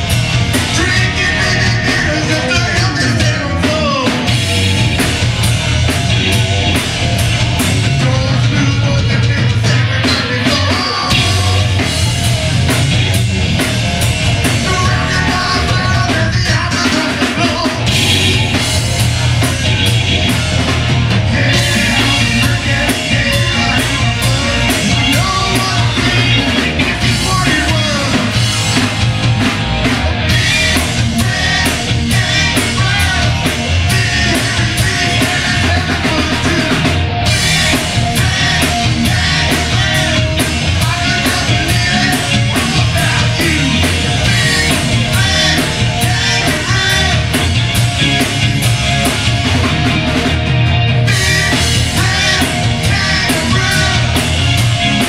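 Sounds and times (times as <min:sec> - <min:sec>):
rock band playing: 0:00.0 - 0:55.0
man singing into a microphone: 0:00.7 - 0:04.3, 0:08.0 - 0:11.7, 0:14.6 - 0:17.9, 0:21.3 - 0:28.3, 0:30.3 - 0:36.9, 0:38.1 - 0:47.3, 0:51.1 - 0:54.3.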